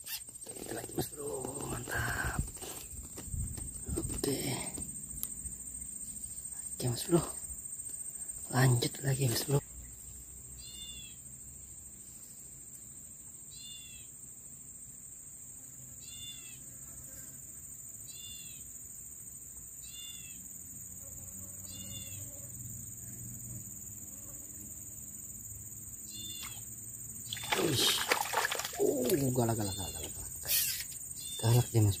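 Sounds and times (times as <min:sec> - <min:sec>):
high insect buzz: 0:00.0 - 0:32.0
bird chirping call: 0:26.1 - 0:26.6, 0:29.7 - 0:31.7
fish splashing in water: 0:27.3 - 0:29.4.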